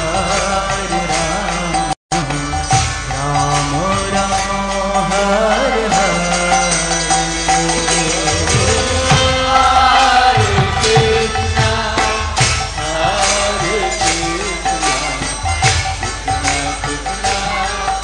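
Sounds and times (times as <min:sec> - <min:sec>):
jingling hand cymbals: 0:00.0 - 0:18.0
voices chanting together: 0:05.0 - 0:18.0
drum beat: 0:06.4 - 0:18.0.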